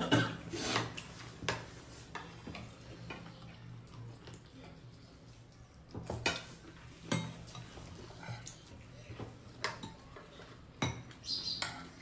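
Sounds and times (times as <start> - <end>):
chewing: 2.2 - 10.6
dishes clinking: 6.0 - 8.6, 9.6 - 12.0.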